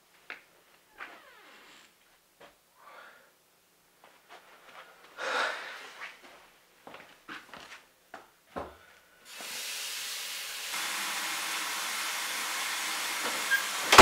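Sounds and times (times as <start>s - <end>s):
sink tap turned on: 9.3s - 14.0s
water running into basin: 9.3s - 14.0s.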